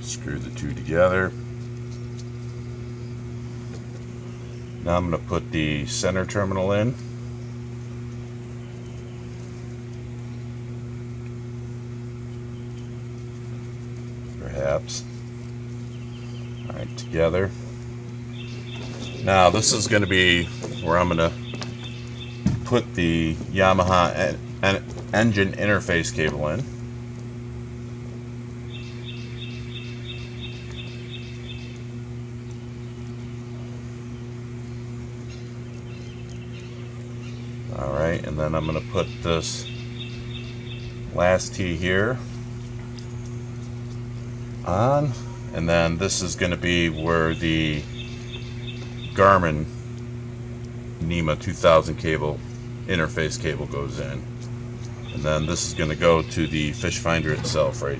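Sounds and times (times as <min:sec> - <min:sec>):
low machine hum with tones: 0:00.0 - 0:57.9
bird chirping: 0:15.8 - 0:17.3, 0:18.3 - 0:22.8, 0:28.7 - 0:31.9, 0:35.2 - 0:37.8, 0:38.5 - 0:41.2, 0:46.9 - 0:49.4, 0:54.9 - 0:57.8.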